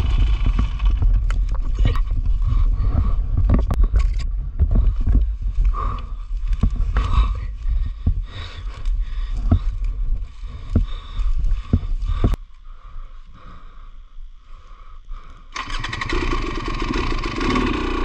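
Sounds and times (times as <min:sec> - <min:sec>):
wind on microphone: 0:00.0 - 0:12.4
dirt bike engine rumble: 0:00.0 - 0:18.0.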